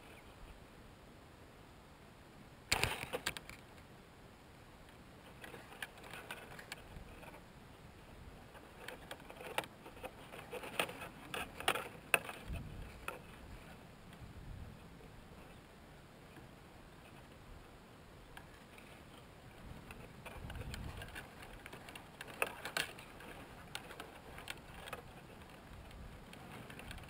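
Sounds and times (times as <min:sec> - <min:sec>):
bird rustling in nest: 0:05.2 - 0:07.4, 0:08.4 - 0:13.8, 0:18.5 - 0:27.0.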